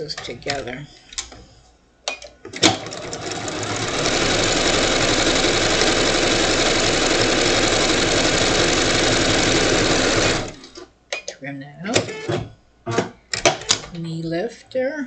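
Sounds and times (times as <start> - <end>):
sewing machine stitching: 2.6 - 10.8.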